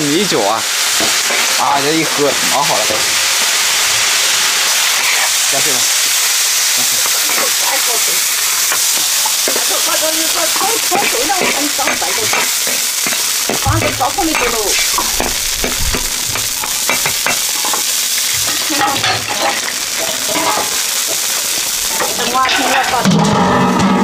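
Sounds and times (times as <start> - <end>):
food sizzling in a wok: 0.0 - 24.0
metal ladle scraping a wok: 8.2 - 24.0.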